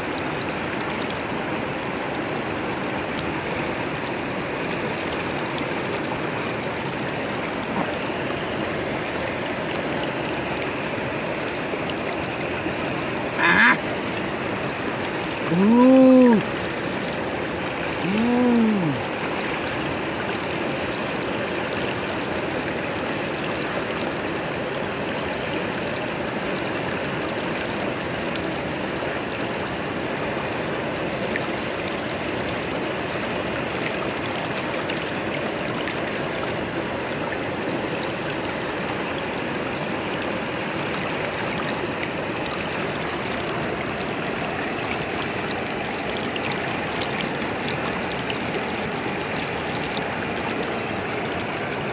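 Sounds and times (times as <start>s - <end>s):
river water flowing: 0.0s - 51.9s
person humming: 13.4s - 13.8s, 15.5s - 16.9s, 18.0s - 19.0s.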